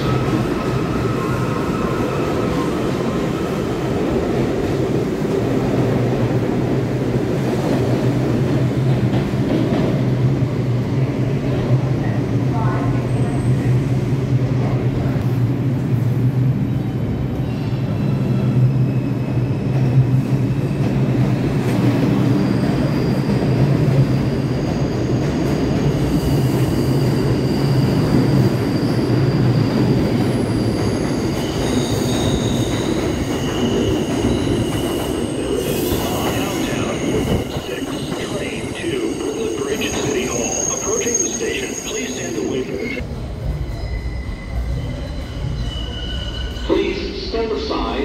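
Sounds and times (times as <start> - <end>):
subway train rumbling: 0.0 - 48.0
steel wheel squeals: 43.6 - 46.8.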